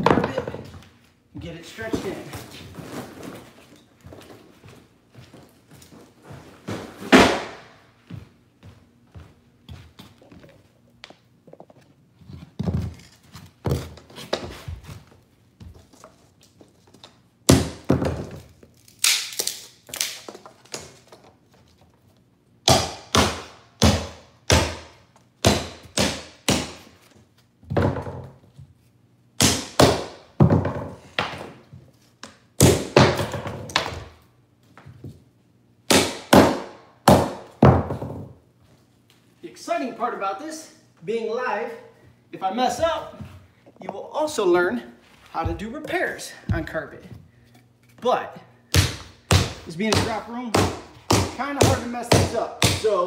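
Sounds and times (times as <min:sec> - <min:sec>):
hammer striking nails: 0:22.6 - 0:26.9, 0:35.9 - 0:38.2, 0:48.7 - 0:52.9.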